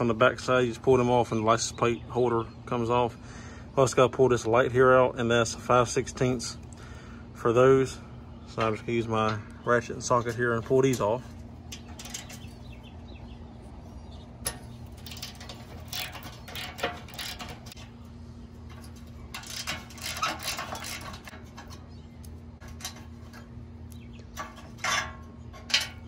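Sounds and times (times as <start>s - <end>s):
steady low hum: 0.0s - 26.0s
metal clinks and knocks: 10.2s - 12.8s, 14.4s - 18.0s, 18.6s - 21.9s, 24.2s - 26.0s
ratchet clicking: 14.4s - 17.8s, 18.7s - 21.8s.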